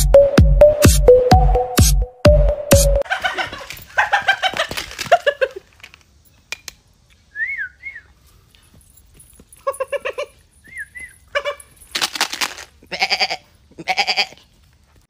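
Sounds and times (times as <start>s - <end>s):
man whistling short notes: 7.3s - 8.2s.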